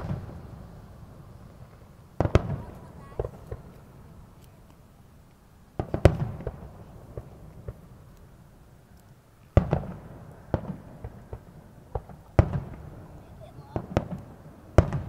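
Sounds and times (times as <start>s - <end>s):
firework shells booming: 0.0s - 4.1s, 5.8s - 8.1s, 9.6s - 15.0s
small firework pops: 1.4s - 15.0s.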